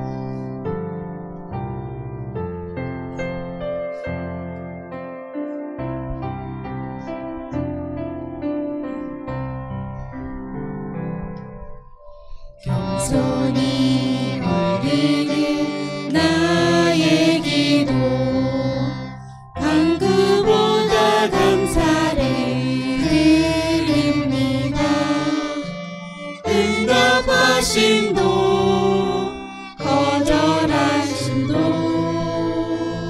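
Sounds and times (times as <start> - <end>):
violin: 0.0 - 1.0, 12.6 - 33.0
group singing through microphones: 12.6 - 33.0.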